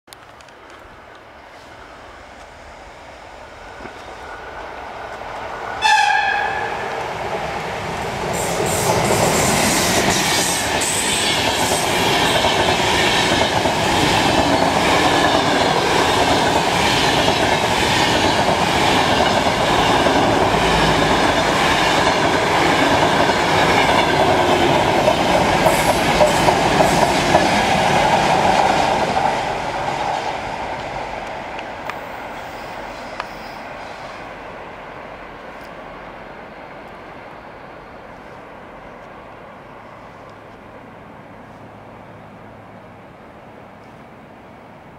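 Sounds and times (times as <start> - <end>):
train rumbling past: 0.6 - 44.9
locomotive whistle blast: 5.8 - 6.8.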